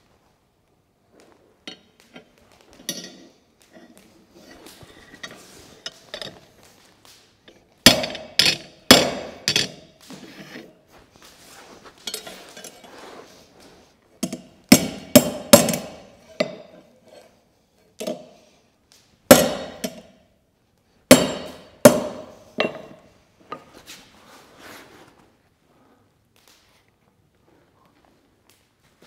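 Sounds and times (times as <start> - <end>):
hammer striking steel on anvil: 7.9 - 9.9, 14.2 - 16.8, 19.3 - 20.2, 21.1 - 23.0.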